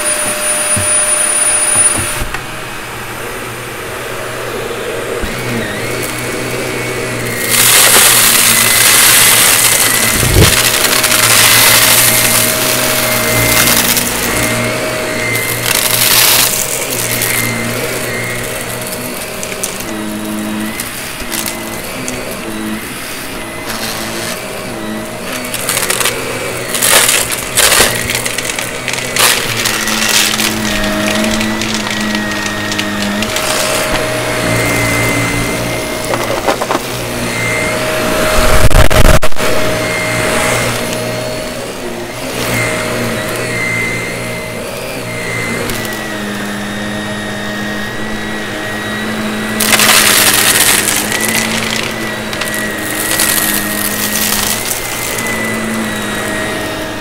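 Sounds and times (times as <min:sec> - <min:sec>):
vacuum cleaner running: 0:00.0 - 0:57.0
debris crackling up nozzle: 0:07.2 - 0:20.0, 0:25.2 - 0:36.9, 0:49.5 - 0:56.3.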